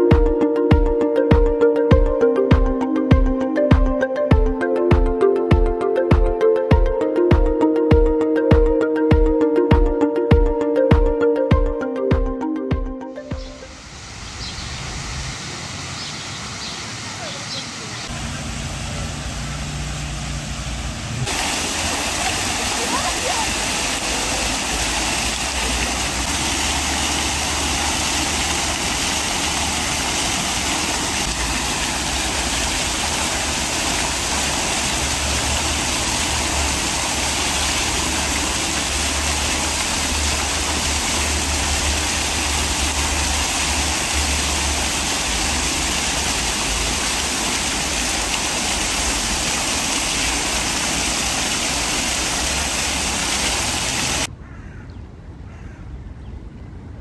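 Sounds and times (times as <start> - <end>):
fountain water splashing: 13.4 - 54.3.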